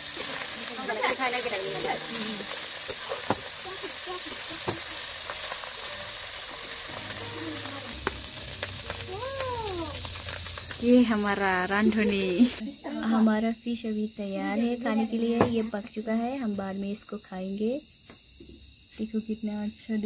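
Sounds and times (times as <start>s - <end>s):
fish sizzling in oil: 0.0s - 12.6s.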